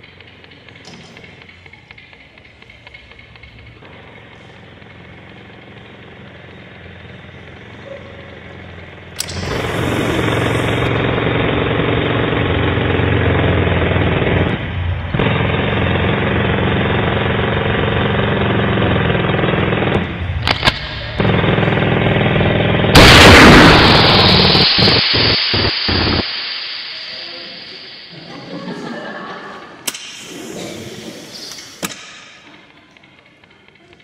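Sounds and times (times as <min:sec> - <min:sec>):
jackhammer: 0:09.1 - 0:26.2.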